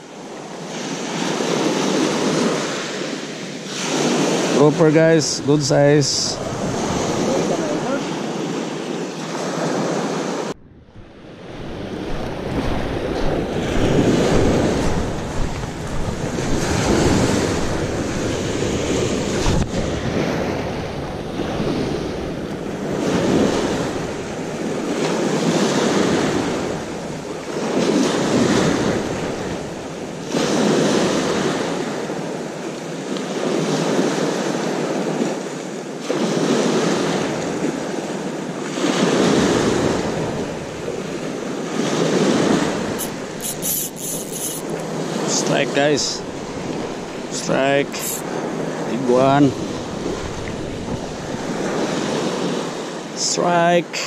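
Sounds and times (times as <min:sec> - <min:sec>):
waves washing on pebbles: 0:00.3 - 0:10.5, 0:11.1 - 0:53.7.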